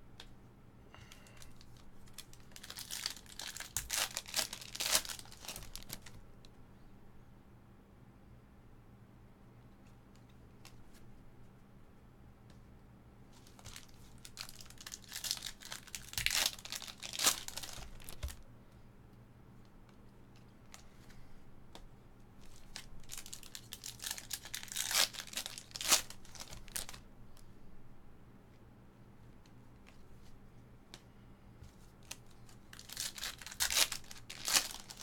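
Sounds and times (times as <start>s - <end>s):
card pack wrappers crinkling: 1.1s - 6.2s, 13.4s - 18.4s, 22.4s - 27.0s, 32.0s - 35.0s.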